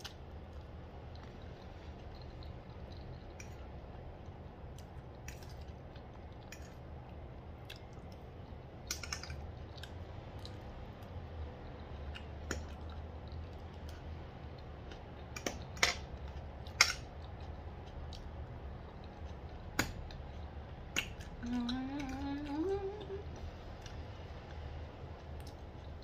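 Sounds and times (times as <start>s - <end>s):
soft chewing: 0.0s - 26.0s.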